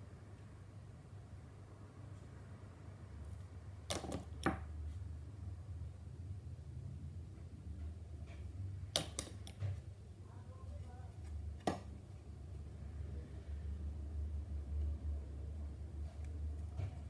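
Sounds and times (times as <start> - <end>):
low steady hum: 0.0 - 17.0
sharp clicks of small objects: 8.9 - 9.7.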